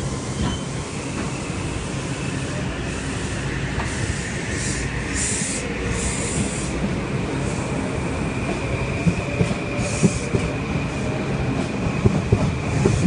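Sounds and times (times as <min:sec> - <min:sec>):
train rolling past: 0:00.0 - 0:13.0
high hissing bursts: 0:01.4 - 0:06.8.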